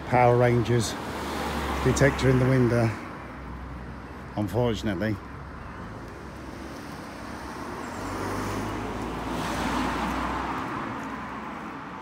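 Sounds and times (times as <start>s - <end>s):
car driving past: 7.4s - 11.6s.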